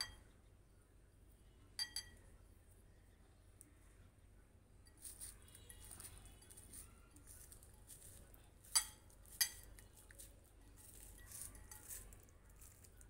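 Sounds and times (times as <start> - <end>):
clinks against glass bowl: 0.0 - 0.2, 1.8 - 2.3, 8.7 - 9.8, 10.8 - 12.1.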